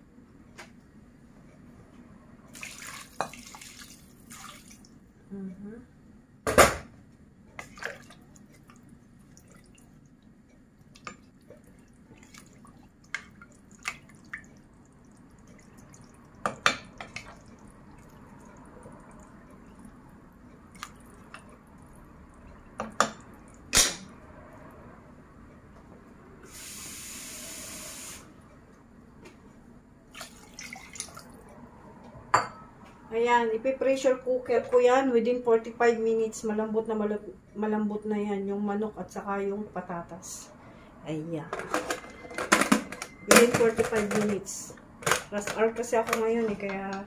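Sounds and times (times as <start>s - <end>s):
liquid sloshing in pot: 7.6s - 10.2s, 10.8s - 23.7s, 30.1s - 31.4s
steady hiss: 26.4s - 28.3s.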